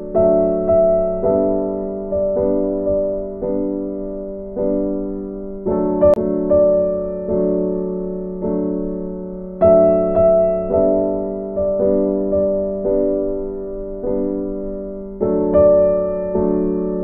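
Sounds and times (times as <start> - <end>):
gentle keyboard chords: 0.0 - 17.0.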